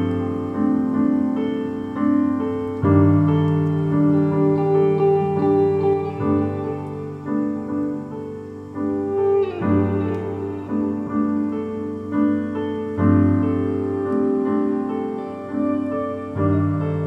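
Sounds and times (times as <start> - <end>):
slow piano music: 0.0 - 17.0.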